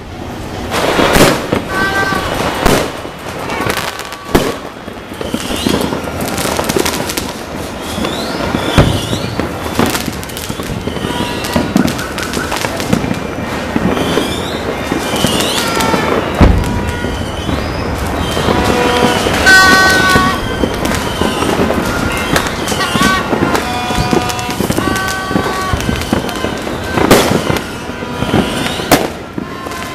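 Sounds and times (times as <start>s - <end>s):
fireworks bangs and crackles: 0.0s - 29.9s
loud fireworks booms: 0.0s - 29.9s
high whistling glides: 7.6s - 29.0s.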